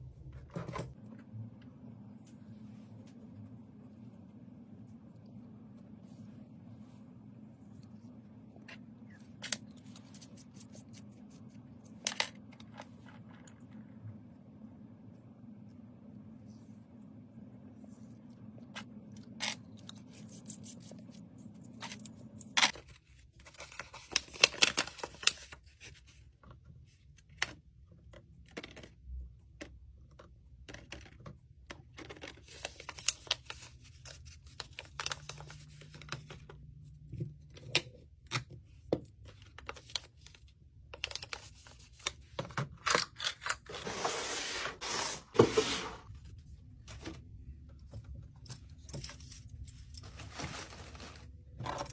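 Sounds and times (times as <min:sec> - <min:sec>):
paper sleeve rustling: 0:43.7 - 0:46.2, 0:50.0 - 0:51.4
tissue paper crinkling: 0:50.0 - 0:51.4.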